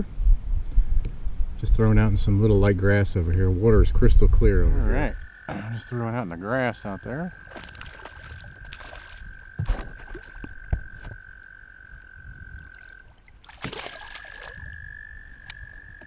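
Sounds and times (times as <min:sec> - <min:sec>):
frog trilling: 0:04.8 - 0:16.0
fish splashing at surface: 0:07.4 - 0:11.2, 0:12.6 - 0:14.8
water splash at hull: 0:07.5 - 0:11.2, 0:12.6 - 0:14.8.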